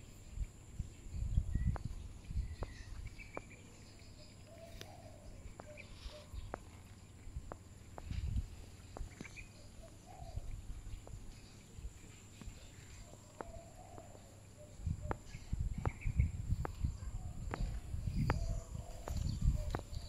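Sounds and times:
wind rumbling on microphone: 0.0 - 20.0
high bird chirps: 1.2 - 6.7.

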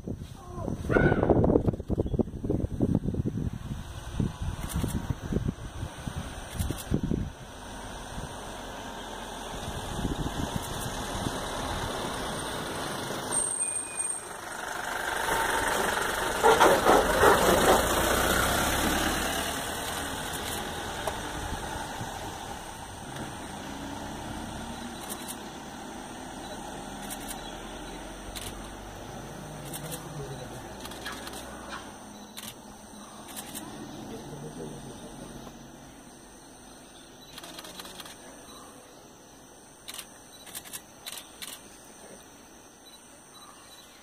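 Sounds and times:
vehicle engine idling: 14.1 - 39.0.

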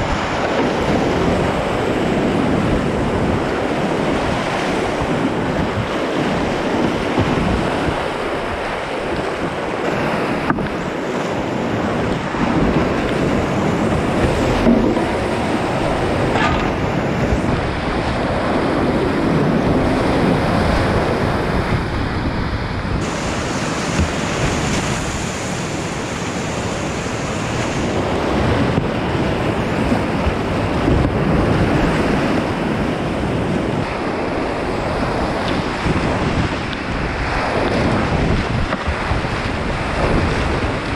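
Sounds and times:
whitewater roaring: 0.0 - 40.9
water splashing: 5.9 - 21.5, 23.0 - 32.4
knocks against boat: 7.1 - 7.7, 13.8 - 17.6.

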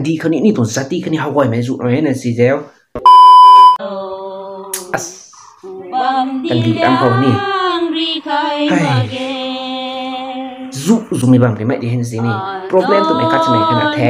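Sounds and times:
person singing long notes: 3.8 - 11.1, 12.2 - 14.0.

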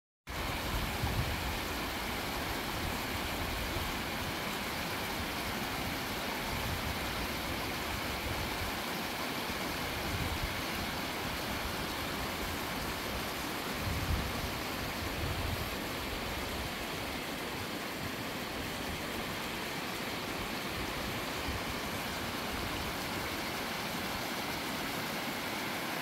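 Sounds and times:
stream running over rocks: 0.3 - 26.0
wind rumble on microphone: 0.4 - 1.7, 13.7 - 16.8.

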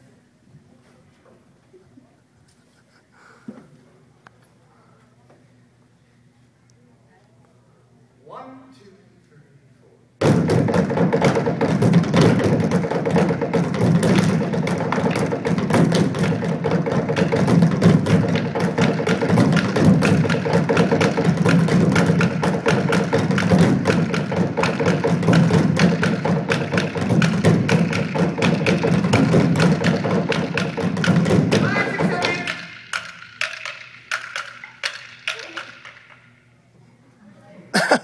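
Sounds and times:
drumming on plastic bins: 10.2 - 36.2.

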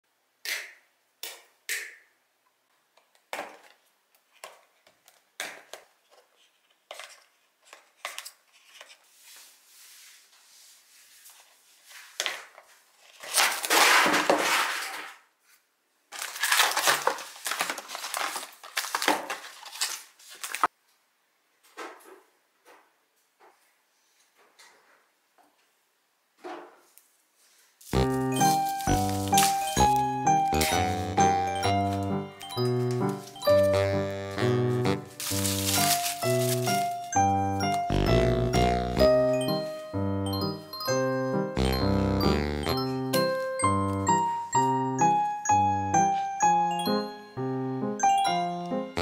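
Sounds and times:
plastic wrapping crinkling: 11.2 - 15.2, 16.1 - 20.7, 27.6 - 39.7.

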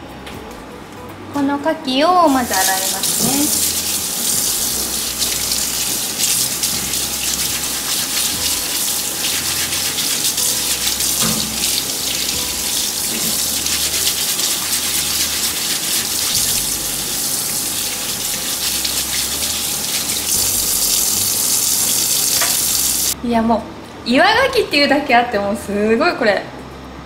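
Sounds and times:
tap water running into sink: 2.4 - 23.2
water splashing over oyster shell: 2.5 - 23.1.

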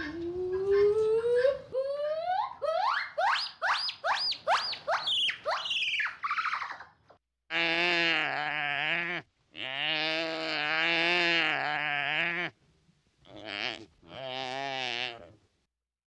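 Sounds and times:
long deep animal calls: 7.5 - 12.6, 13.2 - 15.4.

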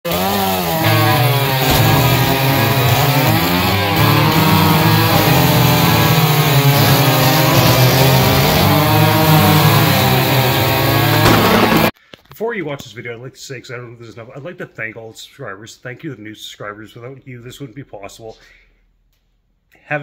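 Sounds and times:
chainsaw cutting wood: 0.1 - 12.0.

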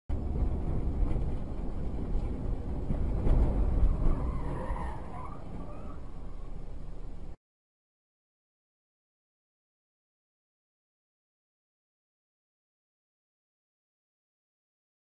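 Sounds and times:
car road noise and engine rumble: 0.1 - 7.4.

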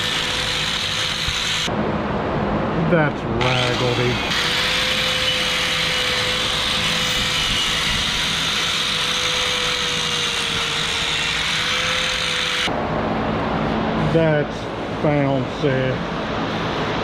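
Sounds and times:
wire brush grinder on metal: 0.0 - 1.7, 3.4 - 12.7.

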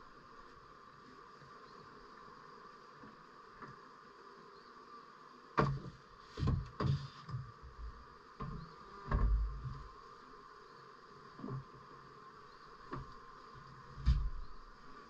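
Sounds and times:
faint steady hum: 0.0 - 15.0
knocks and thumps of hive frames: 2.9 - 4.0, 5.4 - 10.1, 11.2 - 15.0.

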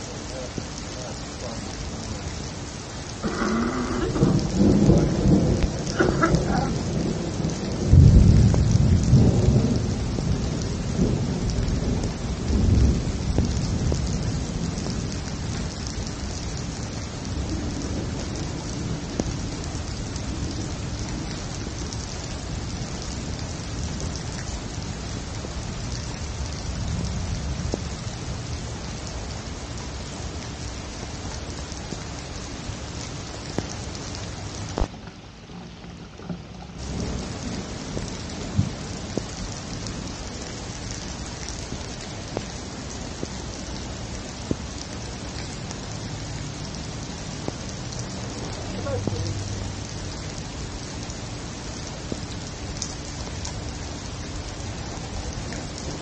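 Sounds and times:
heavy rain: 0.0 - 56.0
rolling thunder: 3.2 - 16.5, 36.5 - 40.2.

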